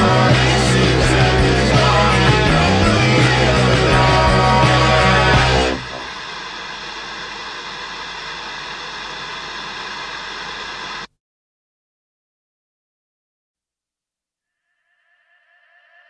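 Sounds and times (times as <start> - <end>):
loud rock music: 0.0 - 6.1.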